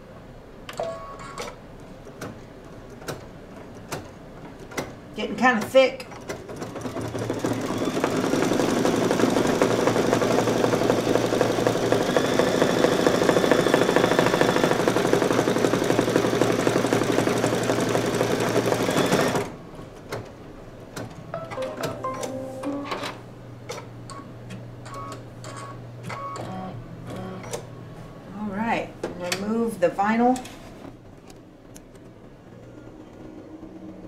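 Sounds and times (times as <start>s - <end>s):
embroidery machine stitching: 6.2s - 19.6s.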